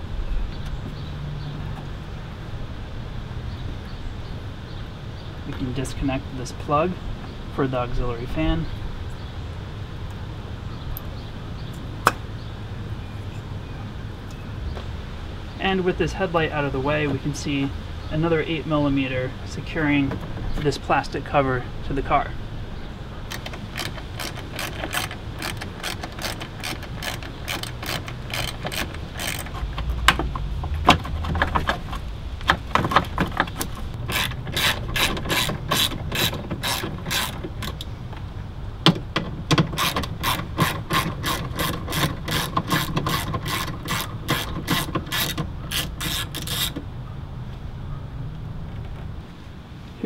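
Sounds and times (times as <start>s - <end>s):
hand ratchet clicking: 23.3s - 30.0s, 33.6s - 37.9s, 39.5s - 46.8s.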